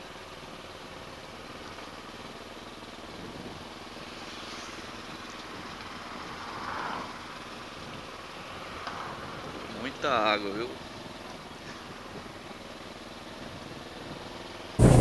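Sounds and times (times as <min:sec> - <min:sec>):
motorcycle engine running: 0:00.0 - 0:15.0
wind noise: 0:13.6 - 0:15.0.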